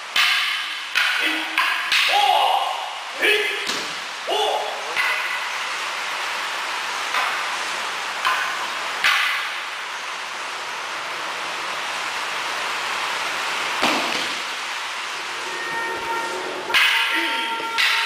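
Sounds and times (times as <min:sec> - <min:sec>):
steady hiss: 0:00.0 - 0:18.0
wooden swords clacking together: 0:00.1 - 0:02.2, 0:04.9 - 0:05.5, 0:16.7 - 0:18.0.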